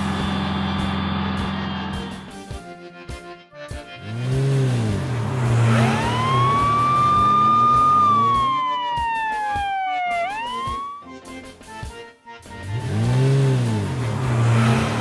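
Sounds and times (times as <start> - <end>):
low vehicle engine rumble: 0.0 - 2.5, 4.0 - 8.8, 12.6 - 15.0
police siren wail: 4.8 - 11.1.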